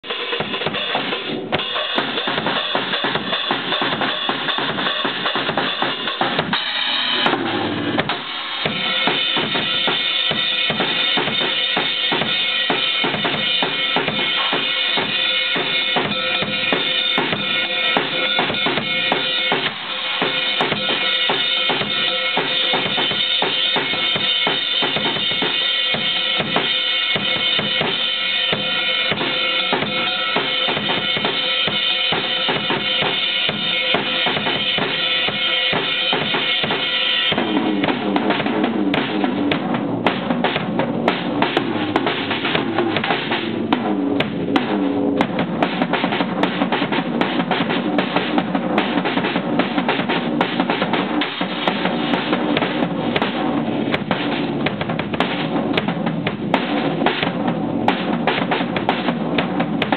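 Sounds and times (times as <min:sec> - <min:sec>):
ringing cymbals: 0:00.0 - 0:39.5
acoustic drum kit beat: 0:00.0 - 0:59.9.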